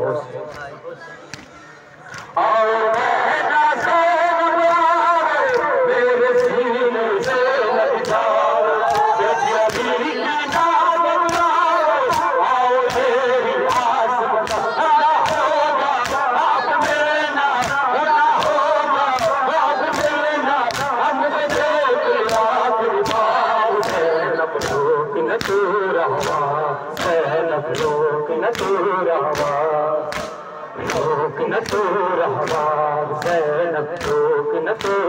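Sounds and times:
men chanting in unison: 0:00.0 - 0:35.0
hands slapping chests: 0:00.5 - 0:03.0, 0:07.2 - 0:07.4, 0:08.0 - 0:09.9, 0:12.1 - 0:13.1, 0:13.7 - 0:17.0, 0:17.6 - 0:21.6, 0:22.3 - 0:25.6, 0:27.0 - 0:33.4, 0:34.0 - 0:35.0.

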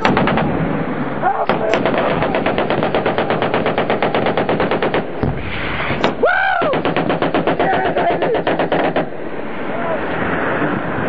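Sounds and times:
automatic machine-gun fire: 0:00.0 - 0:00.6, 0:01.5 - 0:05.5, 0:06.7 - 0:09.1
man yelling: 0:06.2 - 0:06.8, 0:07.6 - 0:08.4.

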